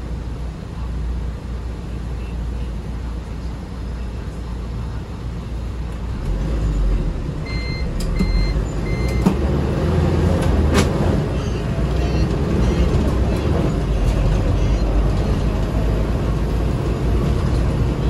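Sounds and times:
minibus engine and road noise: 0:00.0 - 0:18.0
short high electronic beeps: 0:07.5 - 0:09.3.

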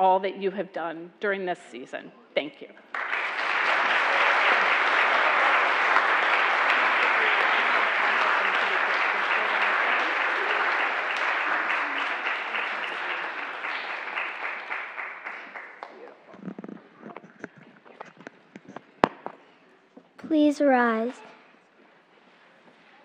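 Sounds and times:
congregation applauding: 0:02.9 - 0:16.6.

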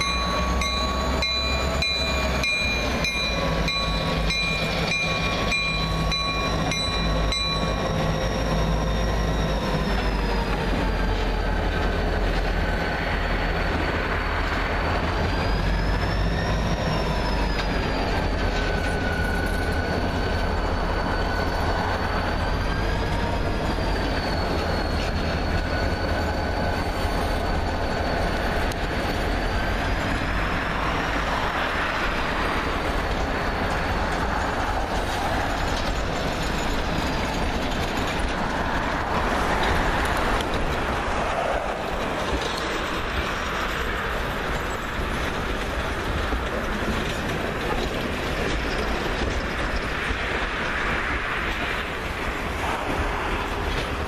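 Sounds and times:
diesel locomotive engine rumble: 0:00.0 - 0:54.0
freight car wheels on rails: 0:00.0 - 0:54.0
steel wheels squealing: 0:00.0 - 0:54.0.

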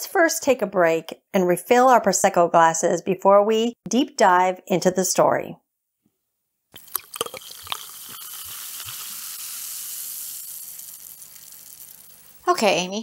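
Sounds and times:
sparkling wine fizzing into glass: 0:06.8 - 0:12.5.

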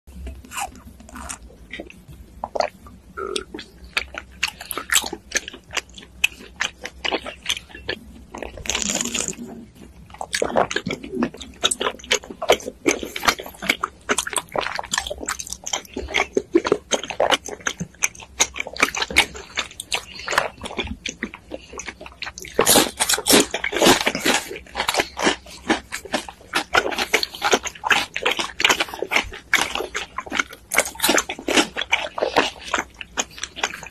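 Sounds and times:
wet chewing clicks: 0:00.2 - 0:33.9
slurping through straw: 0:08.4 - 0:09.7.

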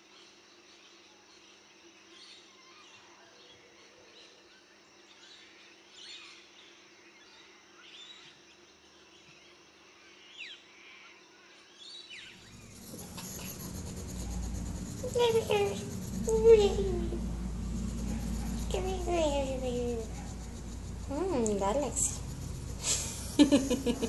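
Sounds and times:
birds chirping: 0:12.4 - 0:24.0
loud noise: 0:12.4 - 0:24.0.

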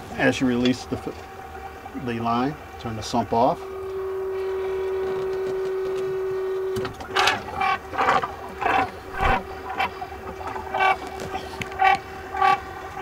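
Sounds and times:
electric pump humming: 0:00.4 - 0:13.0
pump sputtering spurts: 0:06.8 - 0:13.0.

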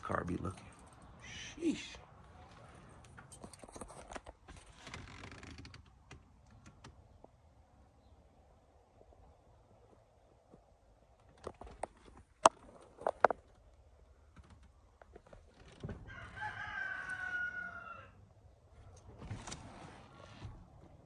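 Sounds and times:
rooster crowing: 0:16.0 - 0:18.2.

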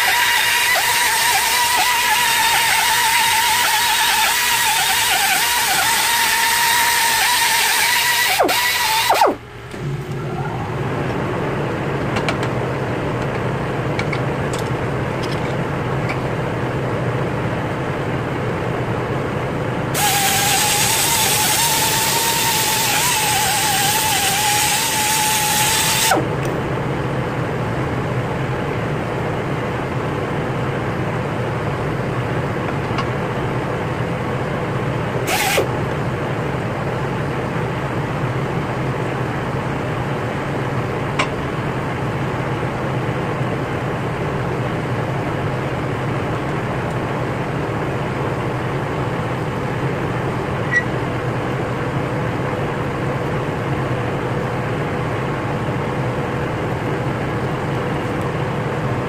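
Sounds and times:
pneumatic grinder whirring: 0:00.0 - 0:10.2, 0:19.9 - 0:26.4, 0:35.2 - 0:35.8
steady low hum: 0:08.3 - 0:59.0.

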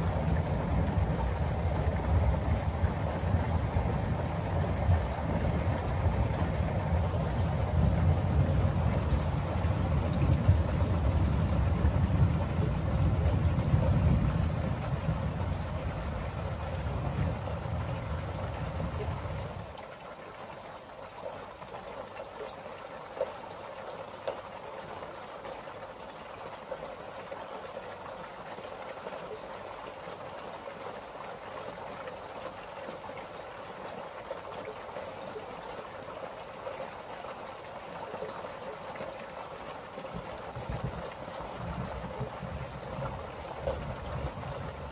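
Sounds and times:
thunder rumble: 0:00.0 - 0:19.6
rain hissing: 0:00.0 - 0:19.7.

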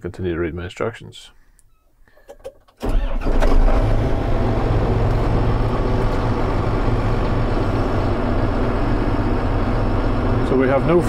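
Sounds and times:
tractor diesel engine running: 0:02.8 - 0:11.0.

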